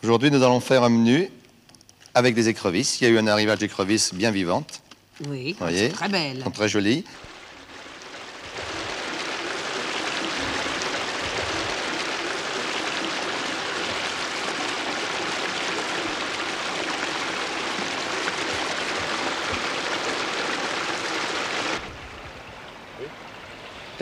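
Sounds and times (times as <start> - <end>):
running water in a tank: 6.4 - 24.0.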